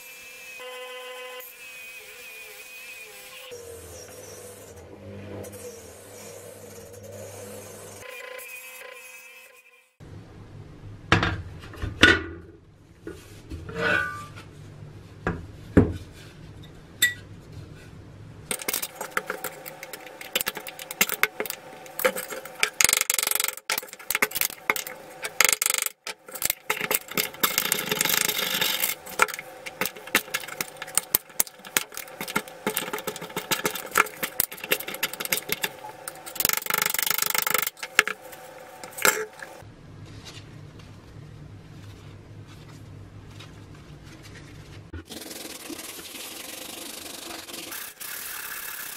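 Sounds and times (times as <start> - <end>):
screwdriver scraping rust: 18.5 - 39.6.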